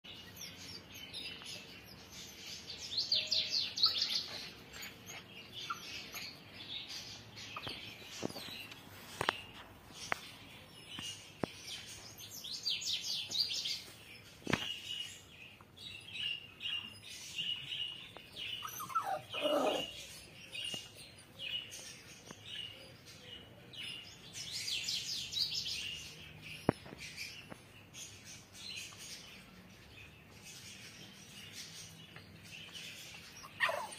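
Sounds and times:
small birds chirping and singing: 0.0 - 33.9.

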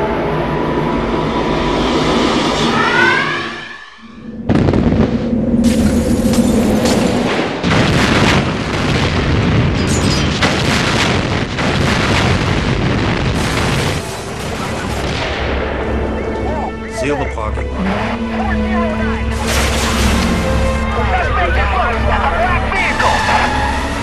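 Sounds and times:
booming and crashing effects: 1.7 - 16.4, 19.2 - 21.4.

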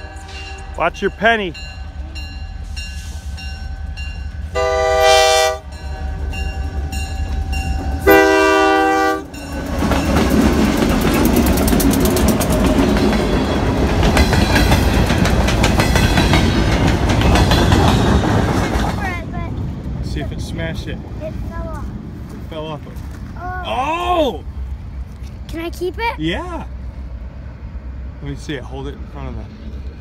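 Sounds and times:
wheels rumbling on rails: 0.0 - 30.0
locomotive horn blasts: 4.5 - 5.8, 8.0 - 9.4
rapid clicking and clattering: 10.7 - 13.0.

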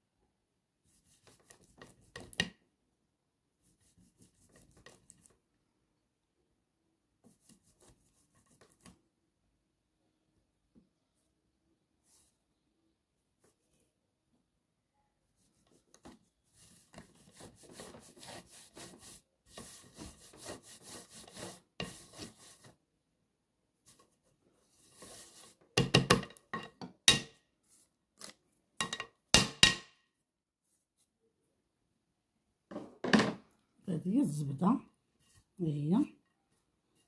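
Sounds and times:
butter scraped across metal grater: 16.8 - 22.7.

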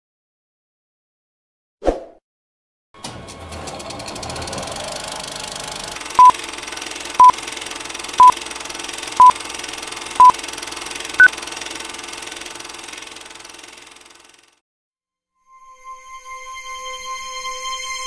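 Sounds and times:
film projector whir and hiss: 4.0 - 14.6.

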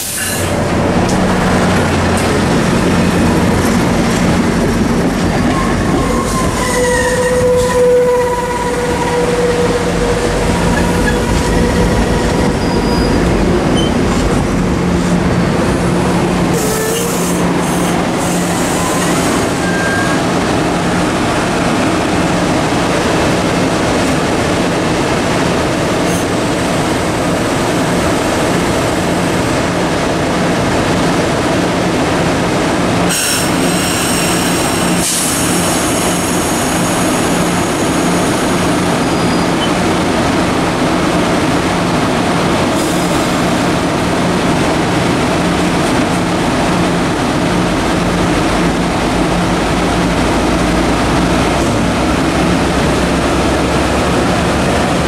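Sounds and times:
high wheel squeal: 5.4 - 10.0, 10.6 - 14.1, 16.6 - 20.2.

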